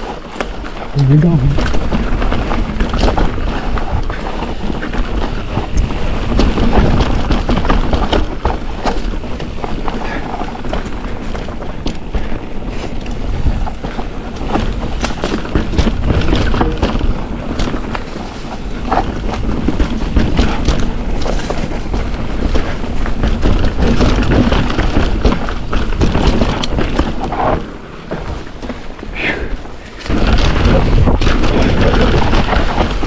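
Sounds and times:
mountain bike rattling on rough trail: 0.0s - 33.0s
wind on microphone: 29.1s - 33.0s.

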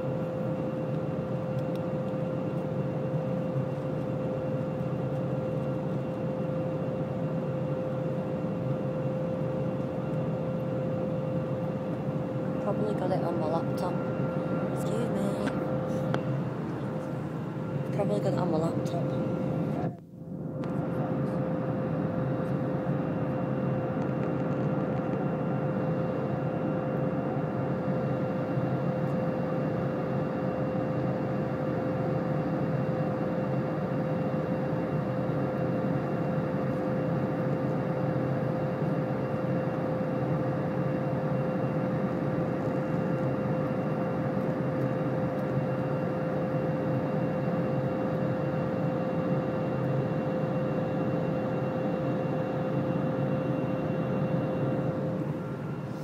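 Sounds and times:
aircraft cabin engine drone: 0.0s - 56.0s
constant mid-pitched hum: 0.0s - 56.0s.

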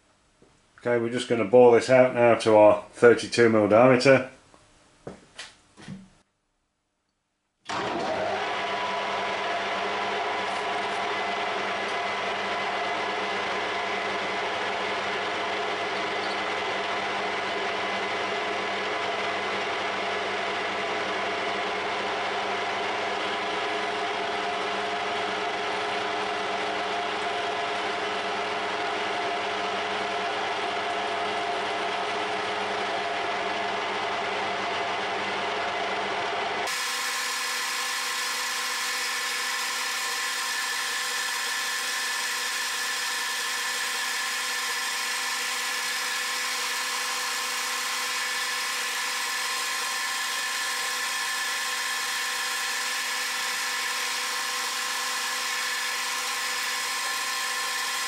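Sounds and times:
metal lathe whine: 9.8s - 20.4s, 36.6s - 58.0s.

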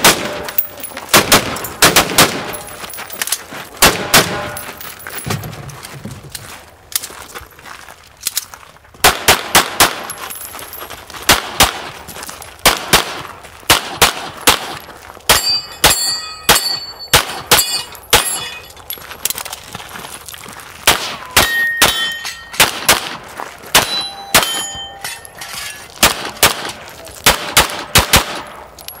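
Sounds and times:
pistol shots: 0.0s - 2.8s, 3.8s - 4.7s, 9.0s - 10.2s, 11.3s - 12.0s, 12.6s - 18.7s, 20.8s - 25.0s, 26.0s - 28.6s
steel target ringing: 15.3s - 18.7s, 21.2s - 22.7s, 23.8s - 25.9s.

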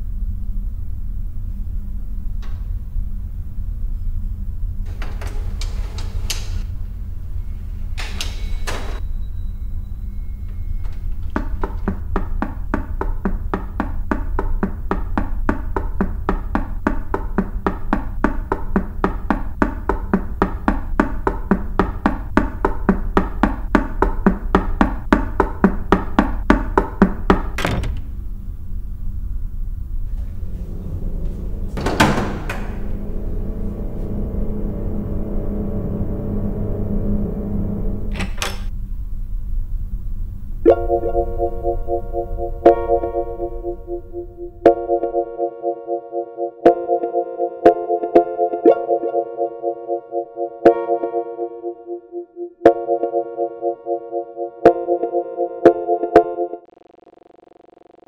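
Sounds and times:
low steady drone: 0.0s - 26.1s, 27.6s - 46.5s
rapid even knocking: 11.2s - 28.0s.

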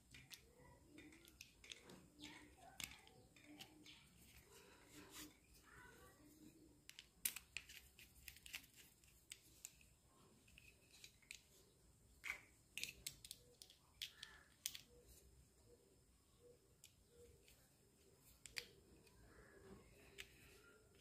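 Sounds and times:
small plastic clicks and taps: 0.0s - 4.5s, 6.8s - 11.6s, 12.2s - 15.0s, 16.8s - 17.6s, 18.2s - 21.0s.

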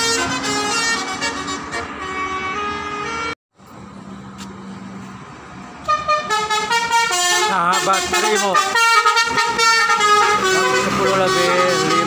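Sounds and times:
musical air horn tune: 0.0s - 3.4s, 5.8s - 12.0s.

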